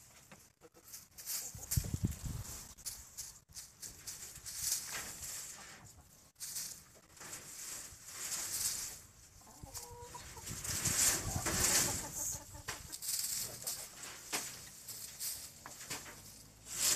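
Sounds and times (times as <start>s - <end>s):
straw rustling: 0.0s - 16.9s
hen clucking: 0.1s - 3.3s, 5.2s - 7.2s, 8.7s - 16.4s.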